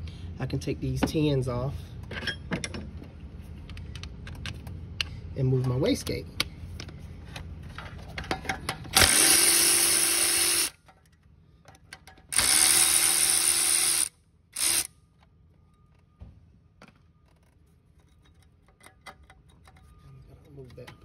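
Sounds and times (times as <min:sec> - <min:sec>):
cordless impact wrench: 0:08.9 - 0:10.8, 0:12.3 - 0:15.0.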